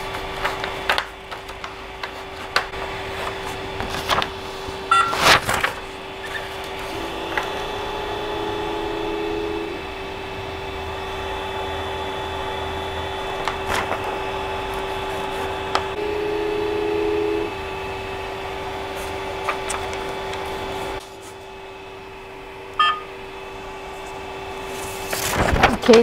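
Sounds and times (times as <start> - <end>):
print head motor whine: 0.0 - 25.2
three d printer humming: 0.0 - 25.2
touchscreen beep: 4.9 - 5.2, 22.8 - 23.1.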